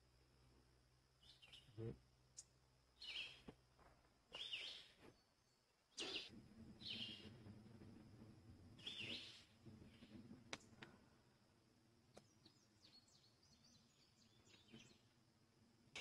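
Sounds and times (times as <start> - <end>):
small songbird calling: 1.2 - 1.8, 2.4 - 3.5, 4.3 - 7.4, 8.8 - 10.2, 12.2 - 15.1.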